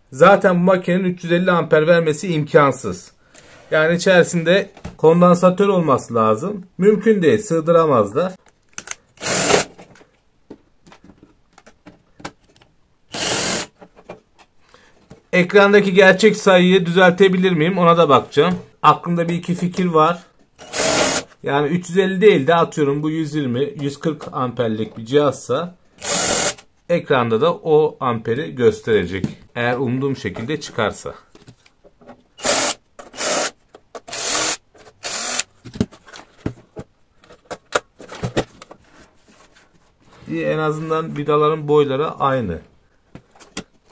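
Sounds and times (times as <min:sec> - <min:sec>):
cordless drill running: 0:09.2 - 0:09.7, 0:13.1 - 0:13.7, 0:20.6 - 0:21.3, 0:26.0 - 0:26.6, 0:32.4 - 0:35.5
faint clicks and handling knocks: 0:09.8 - 0:12.8, 0:31.3 - 0:32.3, 0:34.8 - 0:40.2, 0:43.1 - 0:43.9.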